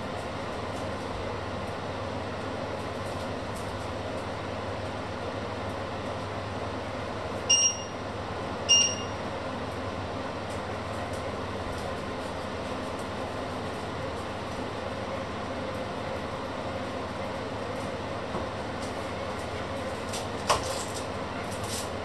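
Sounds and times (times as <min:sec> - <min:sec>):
high electronic beeps: 0:07.5 - 0:07.9, 0:08.7 - 0:09.1.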